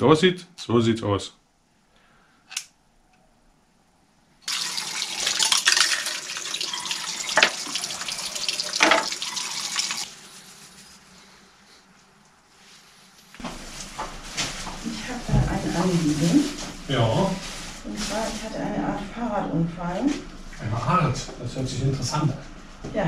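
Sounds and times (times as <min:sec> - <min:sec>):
tap water splashing in basin: 0:04.5 - 0:10.0.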